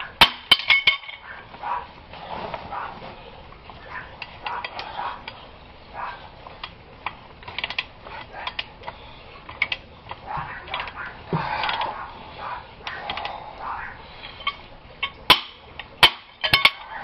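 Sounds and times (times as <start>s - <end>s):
metal tools and fittings clinking: 0.5s - 1.3s, 16.3s - 17.0s.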